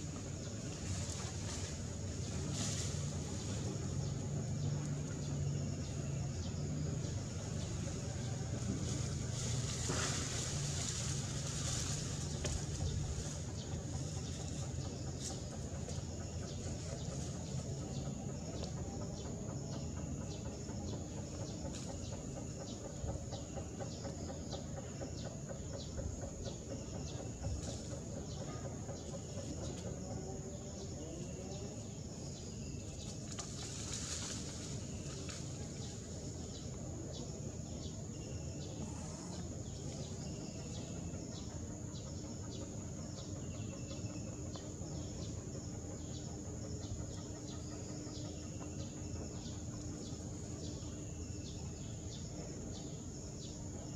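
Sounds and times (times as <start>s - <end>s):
low background rumble: 0.0s - 53.9s.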